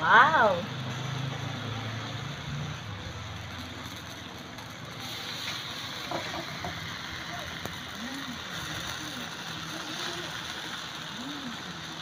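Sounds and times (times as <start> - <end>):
meat sizzling on grill: 0.0 - 12.0.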